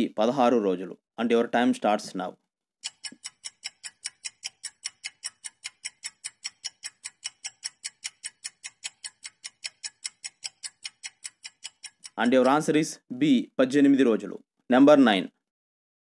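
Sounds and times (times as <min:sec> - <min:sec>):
fast clock-like timer ticking: 0:02.8 - 0:12.9.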